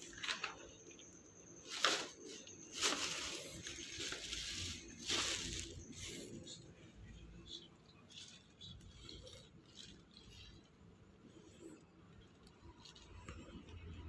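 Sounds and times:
plastic bag rustling: 1.6 - 6.7.

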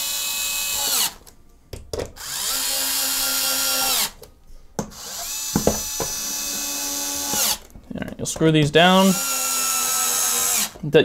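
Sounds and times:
electric screwdriver motor whine: 0.0 - 1.2, 2.2 - 4.2, 4.9 - 7.7, 9.0 - 10.8.

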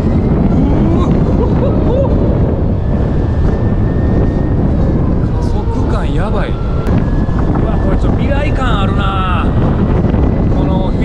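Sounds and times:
motorcycle road noise: 0.0 - 11.0
thin high whine: 0.0 - 11.0
wind rushing over microphone: 0.0 - 11.0.

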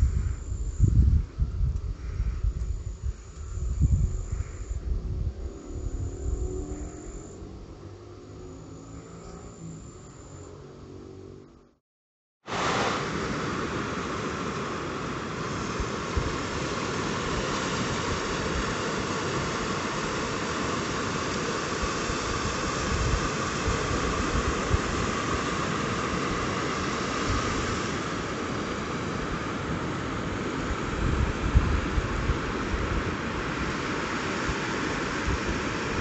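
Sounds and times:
wind gusts on microphone: 0.0 - 8.6, 12.5 - 36.0
small waves washing on beach: 12.4 - 36.0.

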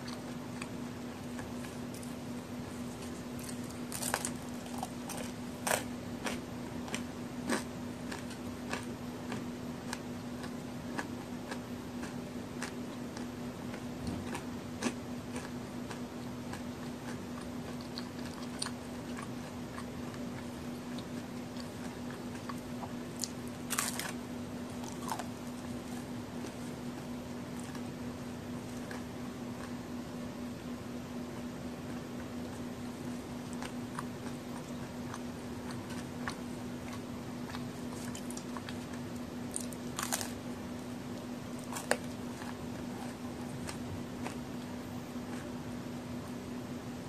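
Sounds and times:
cookie being crunched and chewed: 2.8 - 27.9, 33.4 - 40.4, 41.6 - 44.7.

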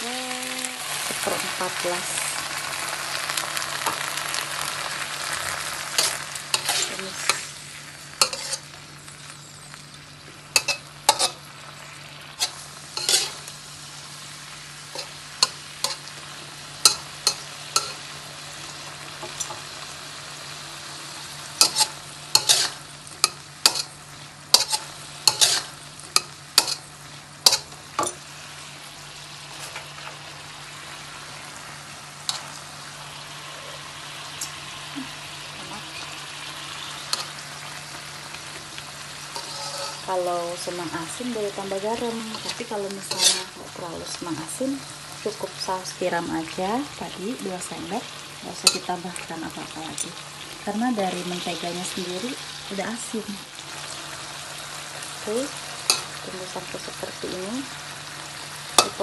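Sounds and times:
beans sizzling in a wok: 0.0 - 59.0
spatula clanking against a wok: 16.8 - 18.0, 21.6 - 23.9, 24.5 - 26.8, 27.4 - 28.2, 58.8 - 59.0.

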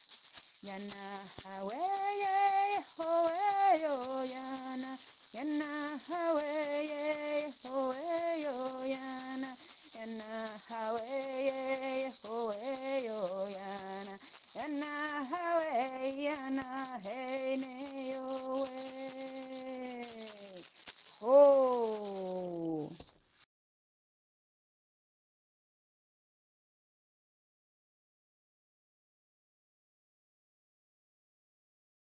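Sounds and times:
hand rattle shaken: 0.0 - 23.4
person singing a chant: 0.6 - 23.0.

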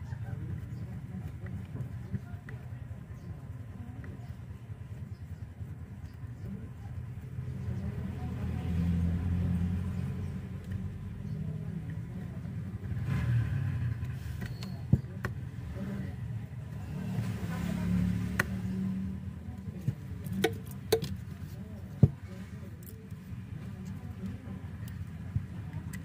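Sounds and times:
plastic speaker housing clicks: 20.2 - 21.2.

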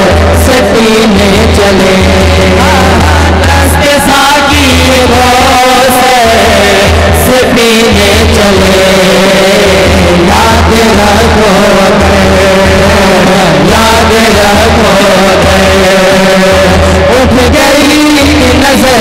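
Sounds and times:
men singing through a loud pa: 0.0 - 19.0.

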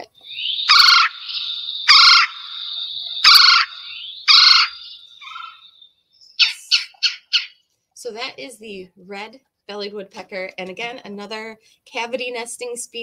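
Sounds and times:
short sharp bird notes: 0.0 - 7.6
thin steady bird whistle: 0.0 - 7.6
woodpecker rolling trilled call: 0.2 - 7.6.

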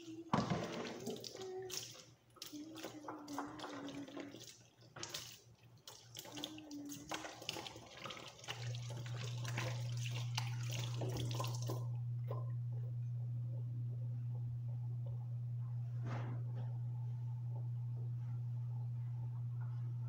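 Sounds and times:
tap water running: 0.0 - 15.4
steady low hum: 9.3 - 20.0.

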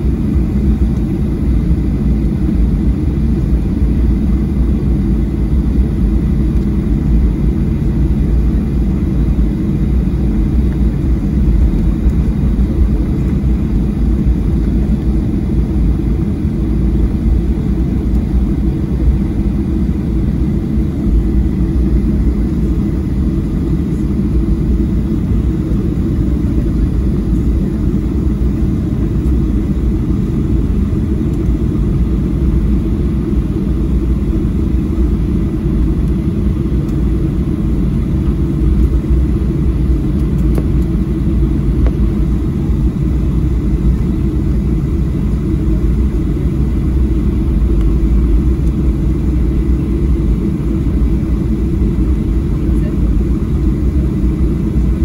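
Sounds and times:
jet engine low rumble: 0.0 - 55.0.

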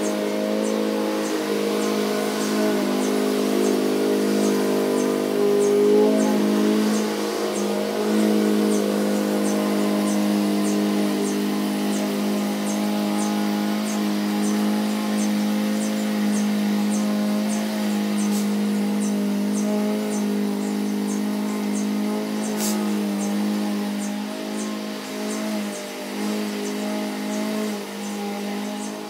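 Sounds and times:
motor droning: 0.0 - 29.0
short hiss: 22.6 - 22.8.

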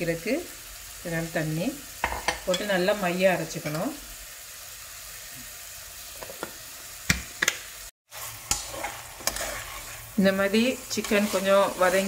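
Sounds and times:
chicken sizzling in hot oil: 0.0 - 12.0
metal spatula scraping pot: 8.1 - 12.0.

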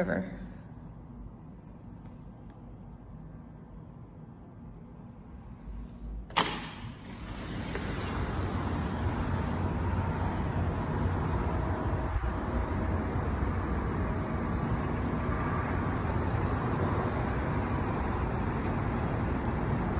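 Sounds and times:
city traffic roar: 7.2 - 19.9.

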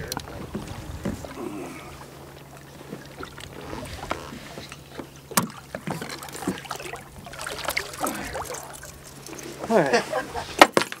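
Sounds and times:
water splashing against boat: 0.0 - 10.8.

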